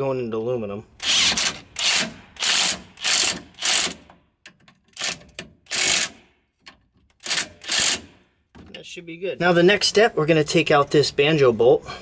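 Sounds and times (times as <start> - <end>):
impact wrench hammering bolts: 1.0 - 8.7.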